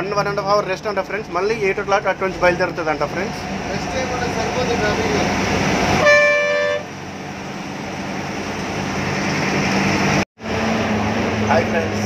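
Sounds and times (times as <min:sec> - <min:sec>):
bus engine drone: 0:00.0 - 0:12.0
road noise: 0:00.0 - 0:12.0
vehicle horn blast: 0:06.0 - 0:06.9.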